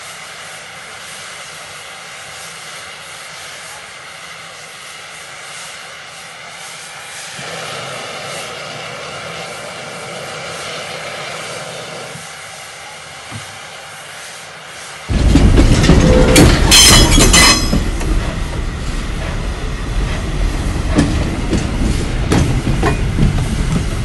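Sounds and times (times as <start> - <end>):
loud train noise: 0.0 - 24.0
machine drone with hiss: 0.0 - 24.0.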